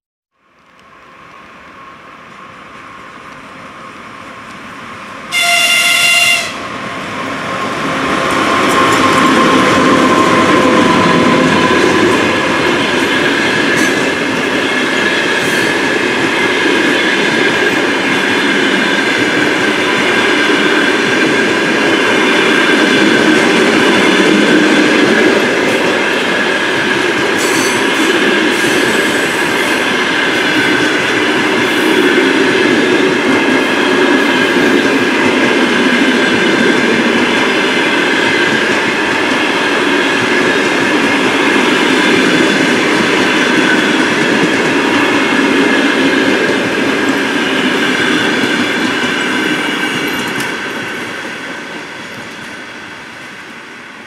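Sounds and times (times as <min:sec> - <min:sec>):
train wheels rumbling on rail: 0:00.6 - 0:54.0
train horn blast: 0:05.3 - 0:06.7
wheels clacking over rail joints: 0:07.1 - 0:51.4.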